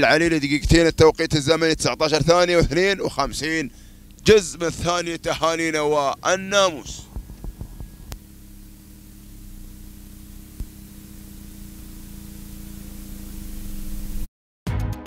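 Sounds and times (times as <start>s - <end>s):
low hum: 0.1s - 14.3s
steady rushing noise: 2.4s - 14.3s
music: 14.7s - 15.0s.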